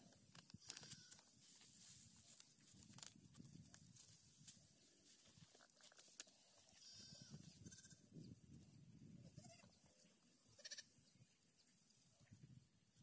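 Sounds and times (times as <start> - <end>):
faint animal cries: 6.8 - 8.0, 10.6 - 10.9.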